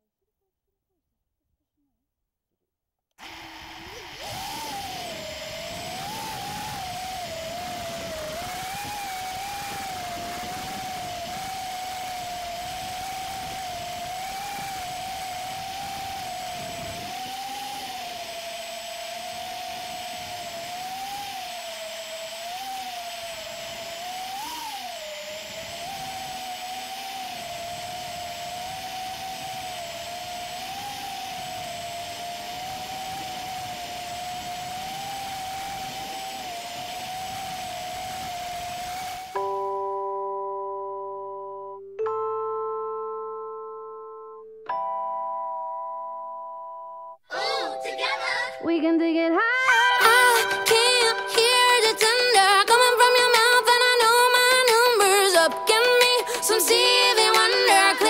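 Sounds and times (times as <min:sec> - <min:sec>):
drone motors whining: 0:03.2 - 0:40.0, 0:49.5 - 0:58.0
rushing air hiss: 0:03.3 - 0:39.4, 0:50.0 - 0:58.0.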